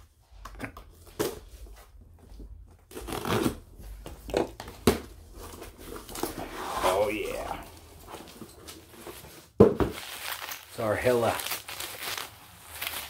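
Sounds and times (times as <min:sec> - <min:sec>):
cardboard scraping and rustling: 0:02.8 - 0:10.7.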